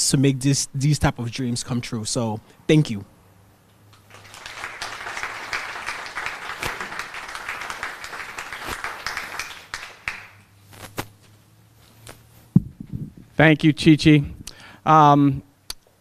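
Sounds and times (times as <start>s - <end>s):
audience applauding: 4.0s - 10.4s.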